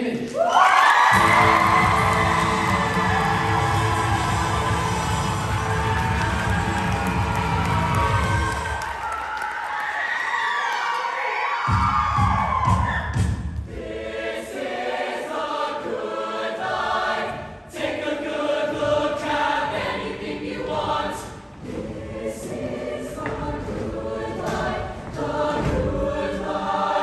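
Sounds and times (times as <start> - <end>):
choir singing in harmony: 1.1 - 8.7, 13.6 - 27.0.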